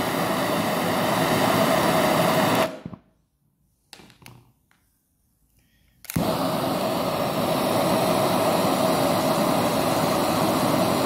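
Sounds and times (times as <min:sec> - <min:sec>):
torch flame hissing: 0:00.0 - 0:03.0, 0:06.1 - 0:11.0.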